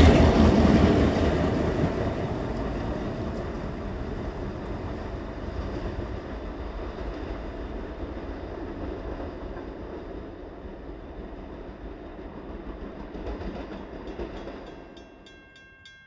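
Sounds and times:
train engine rumble: 0:00.0 - 0:16.0
train wheel noise: 0:00.0 - 0:16.0.

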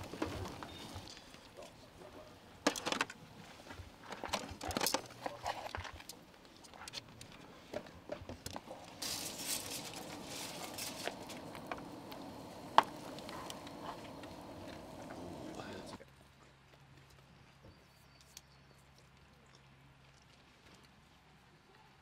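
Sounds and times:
eggs sizzling in a frying pan: 0:09.0 - 0:16.0.

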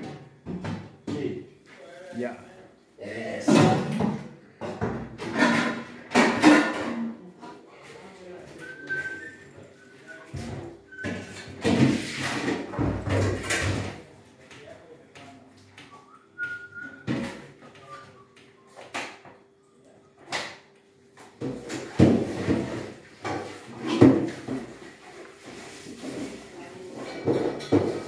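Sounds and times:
metal pots clattering: 0:03.4 - 0:07.1, 0:21.5 - 0:28.0.

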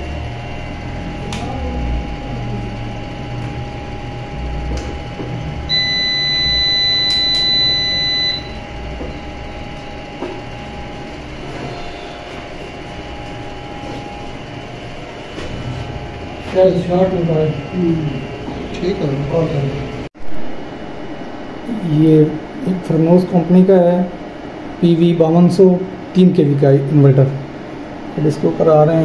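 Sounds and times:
faint electrical hum: 0:00.0 - 0:29.0
high-pitched inverter beep: 0:02.7 - 0:14.0.

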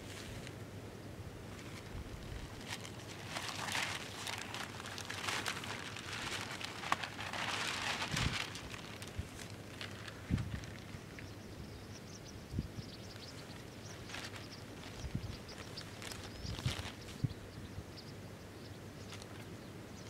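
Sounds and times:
plastic sheet rustling and crinkling: 0:01.5 - 0:11.2, 0:13.9 - 0:17.2.

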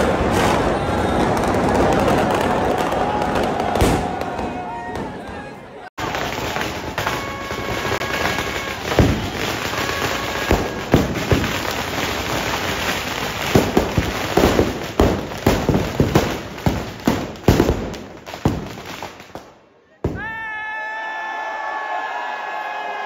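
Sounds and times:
firecracker bangs: 0:00.0 - 0:05.2, 0:06.0 - 0:19.1
firecracker crackle: 0:00.0 - 0:05.2, 0:06.0 - 0:20.3.

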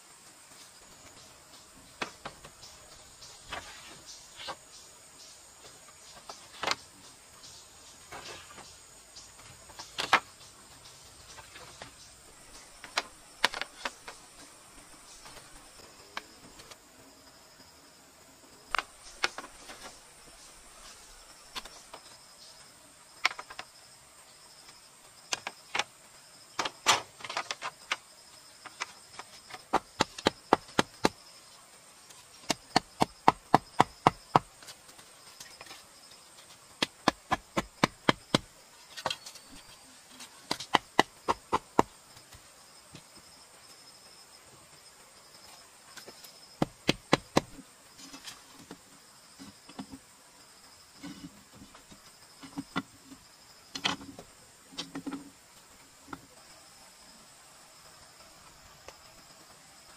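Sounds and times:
high insect drone: 0:00.0 - 0:59.9
wood knocking bamboo stakes: 0:09.4 - 0:10.4, 0:11.3 - 0:14.2, 0:18.7 - 0:20.0, 0:23.2 - 0:23.7, 0:28.6 - 0:31.2, 0:32.4 - 0:34.8, 0:36.4 - 0:42.4, 0:46.0 - 0:48.8.

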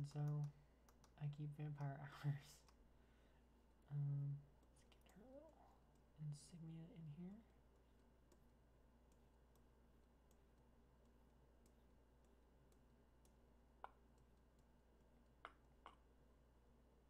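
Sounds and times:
stylus tapping on pen tablet: 0:10.3 - 0:14.7, 0:15.4 - 0:16.1.

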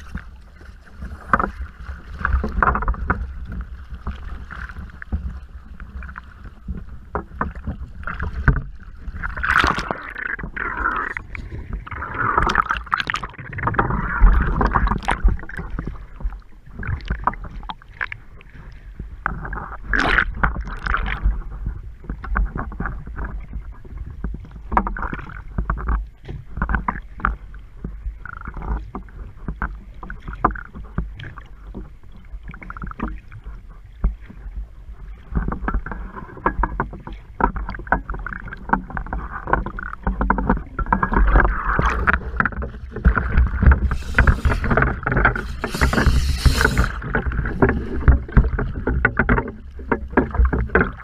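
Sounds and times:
low rumble and crackling: 0:00.0 - 0:51.0
water sloshing and bubbling: 0:00.0 - 0:51.0
regulator bubbles: 0:37.6 - 0:51.0.

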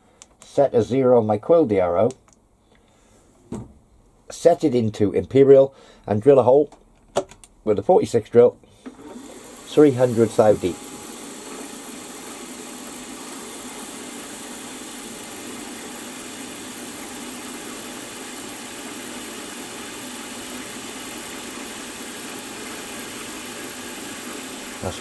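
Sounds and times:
milling machine drilling whir: 0:08.8 - 0:25.0.

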